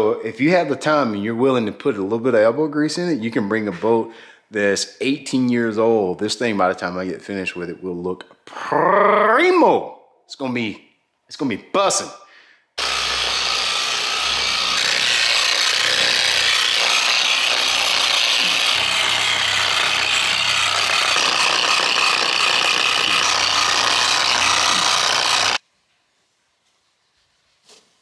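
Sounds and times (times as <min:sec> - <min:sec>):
electric buffer whirring: 0:12.8 - 0:25.6.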